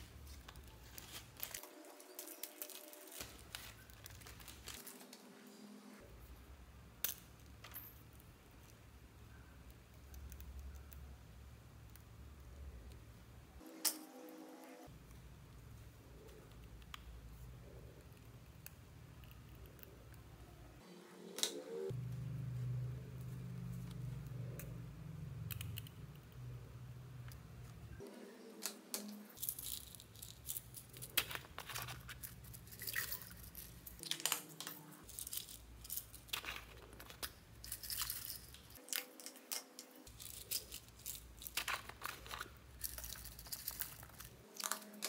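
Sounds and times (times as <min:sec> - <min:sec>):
low steady hum: 0:00.0 - 0:45.0
sequins crinkling onto slime: 0:00.2 - 0:05.2, 0:29.0 - 0:45.0.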